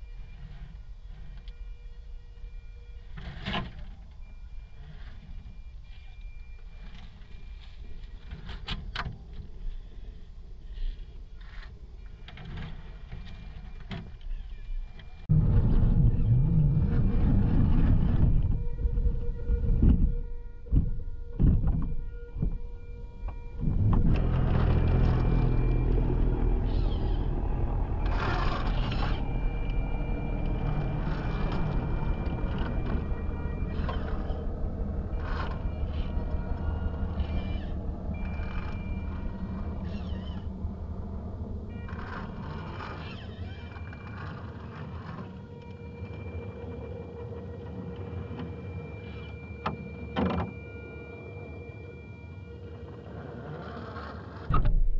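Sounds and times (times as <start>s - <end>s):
rc truck motor whining: 0.0s - 54.5s
tires scraping on rock: 15.2s - 20.0s, 23.1s - 49.6s, 52.7s - 54.5s
low rumble: 15.2s - 48.4s.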